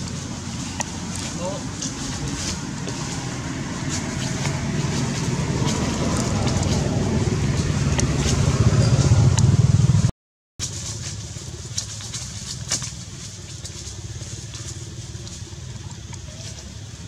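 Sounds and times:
vehicle engine rumble: 0.0s - 17.0s.

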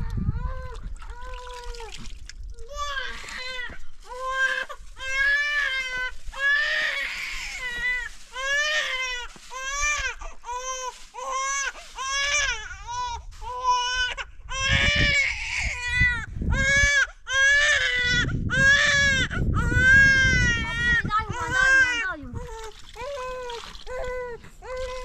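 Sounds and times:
baby crying: 13.5s - 25.0s.

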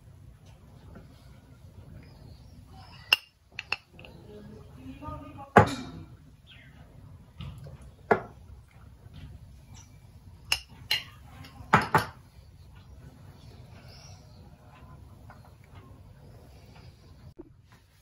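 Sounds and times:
metal spoon clinking on glass: 10.5s - 12.2s.

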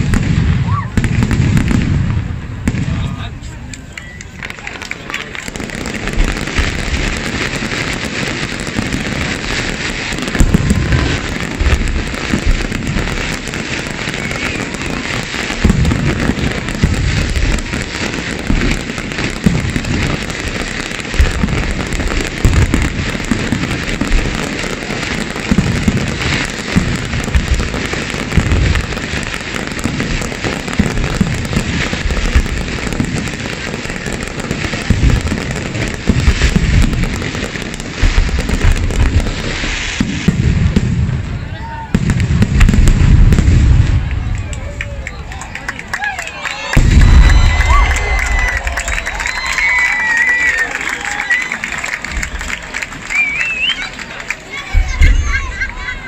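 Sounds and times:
fireworks crackling: 0.0s - 56.0s
fireworks shells booming: 0.0s - 56.0s.

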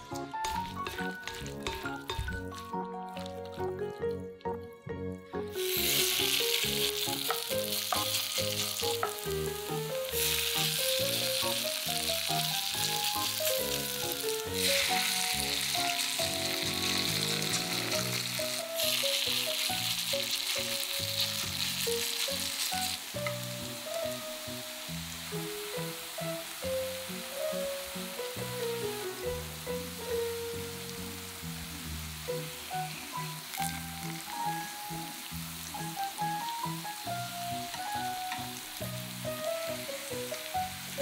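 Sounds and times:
potatoes sizzling in hot oil: 0.0s - 4.3s, 5.4s - 41.0s
light background music: 0.0s - 41.0s.

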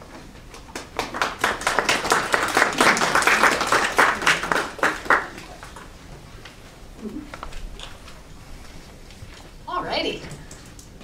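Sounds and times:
audience applauding: 0.6s - 5.9s.

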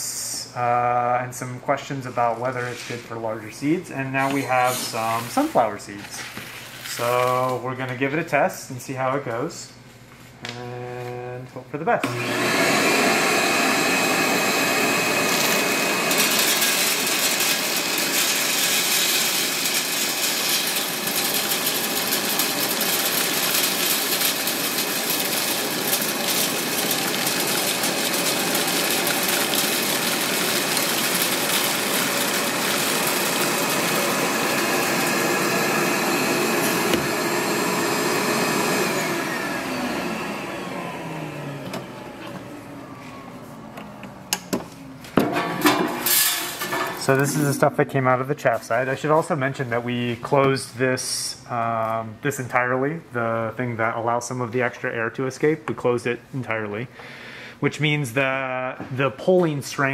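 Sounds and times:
shop vac whining: 0.0s - 55.6s.

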